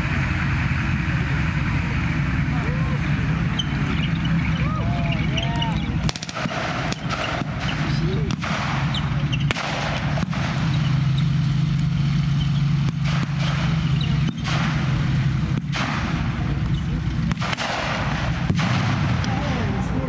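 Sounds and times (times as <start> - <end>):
tank engine droning: 0.0 - 20.0
blank gunshots: 6.0 - 11.2, 12.8 - 20.0.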